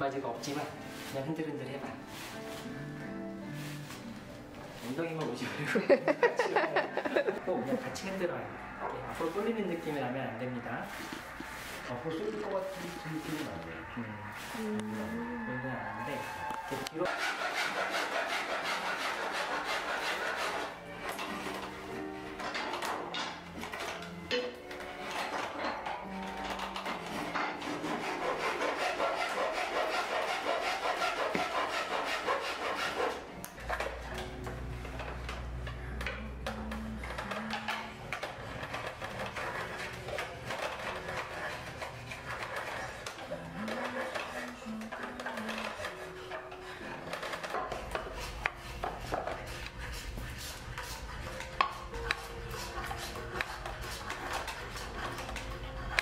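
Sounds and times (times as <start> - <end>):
blade scraping wood: 0.3 - 5.3, 7.4 - 56.0.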